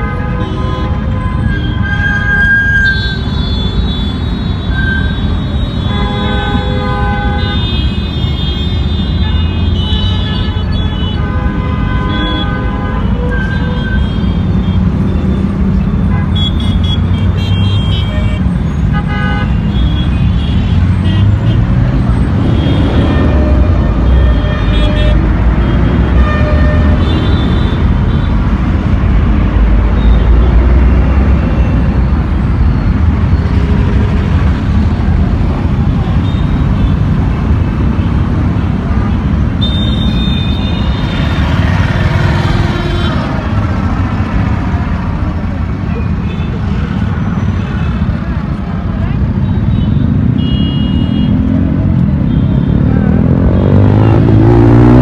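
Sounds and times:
heavy traffic rumble: 0.0s - 55.0s
vehicle horn toots: 39.0s - 41.4s, 49.5s - 51.6s.

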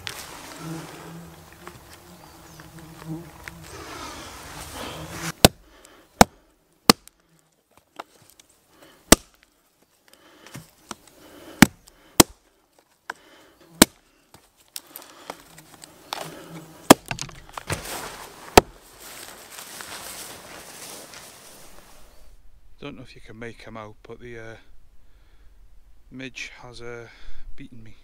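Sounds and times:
hatchet chopping a stick: 5.3s - 5.6s, 6.2s - 7.2s, 9.1s - 9.4s, 11.6s - 12.4s, 13.8s - 14.0s, 16.9s - 17.4s.

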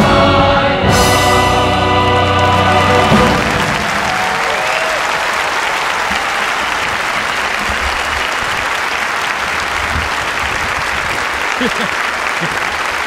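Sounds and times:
wind over microphone: 9.4s - 11.4s.

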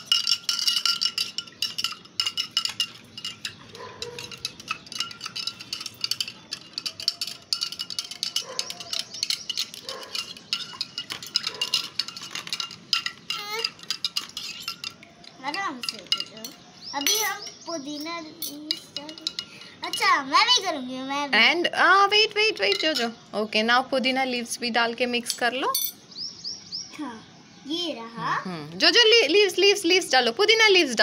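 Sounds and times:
spoon clinking against glass: 0.0s - 20.1s, 22.4s - 23.2s, 25.2s - 26.0s.

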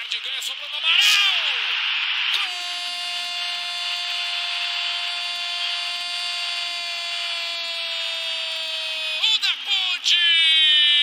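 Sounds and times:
long horn-like tone: 2.4s - 6.3s.

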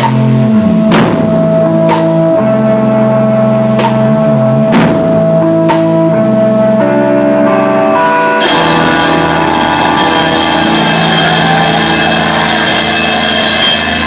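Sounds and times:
drums and cymbals crashing: 0.0s - 2.3s, 4.7s - 6.0s, 8.4s - 14.0s
distorted electric guitar: 0.0s - 14.0s
live rock band: 0.0s - 14.0s.

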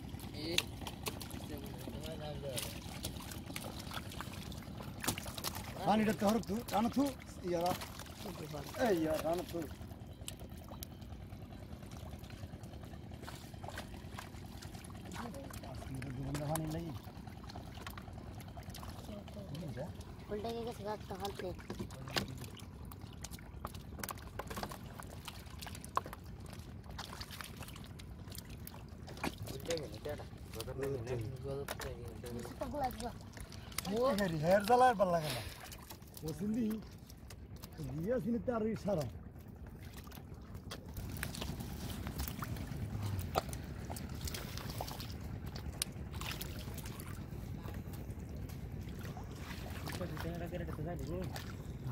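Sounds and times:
hands splashing in muddy water: 0.2s - 10.4s, 21.1s - 37.8s, 39.7s - 51.9s.

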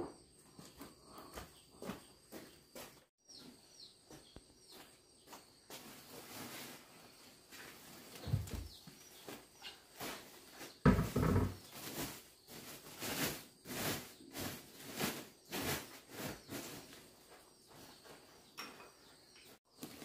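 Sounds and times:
plastic sack rustling: 5.8s - 8.6s, 9.8s - 17.1s.

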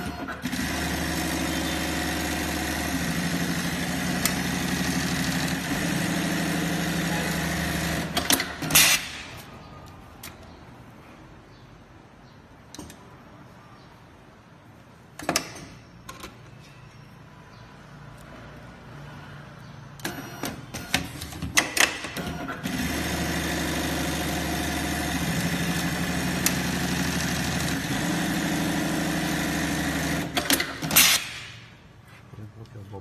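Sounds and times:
sewing machine running: 0.0s - 8.4s, 22.2s - 31.0s.

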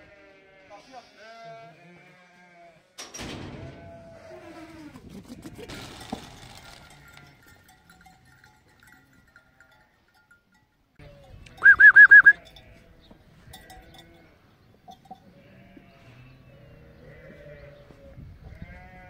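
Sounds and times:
faint flock bleating: 0.0s - 3.0s, 3.7s - 5.0s, 11.0s - 14.5s, 15.3s - 19.0s
sheep bleating: 0.0s - 3.0s, 11.0s - 13.0s, 15.3s - 19.0s.

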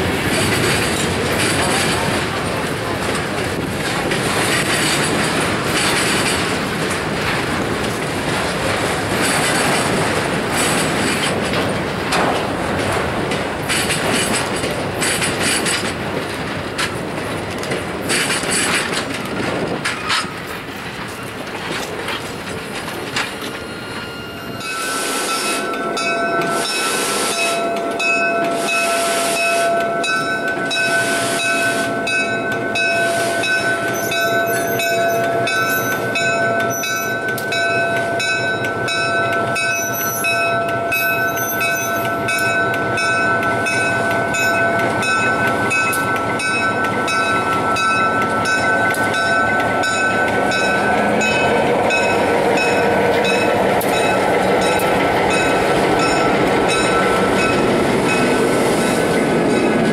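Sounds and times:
diesel locomotive rolling in: 0.0s - 59.9s
steam locomotive whine and hiss: 17.5s - 59.9s.

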